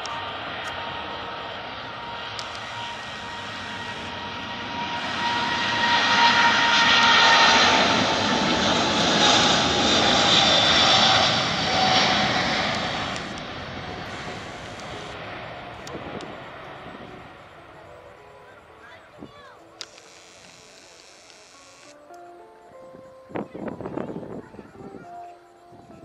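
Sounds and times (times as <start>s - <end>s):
jet airliner taking off: 0.0s - 18.8s
whining jet engine tone: 0.0s - 22.1s.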